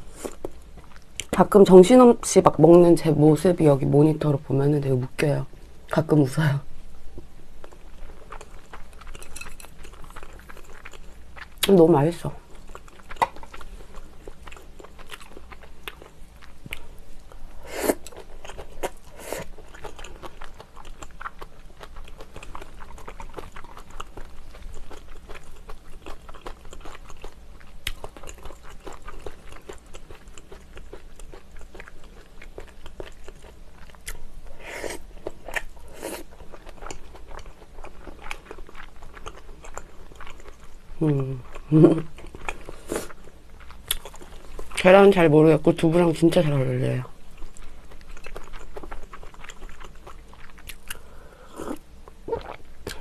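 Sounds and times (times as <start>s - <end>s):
person chewing food: 0.0s - 1.3s, 7.1s - 11.7s, 12.4s - 44.9s, 47.1s - 53.0s
wet mouth clicks: 51.6s - 53.0s.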